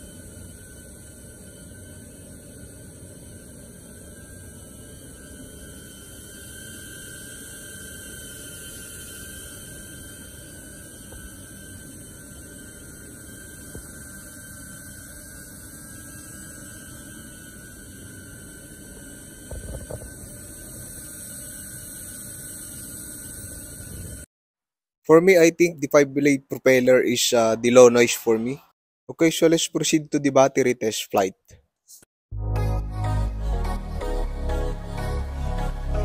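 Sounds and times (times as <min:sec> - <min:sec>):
drone hovering with whirring hum: 0:00.0 - 0:24.3, 0:32.4 - 0:36.0.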